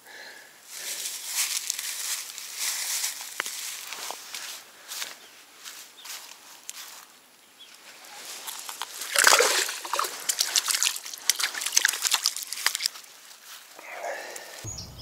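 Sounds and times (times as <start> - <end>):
fish splashing in shallow water: 7.8 - 13.6.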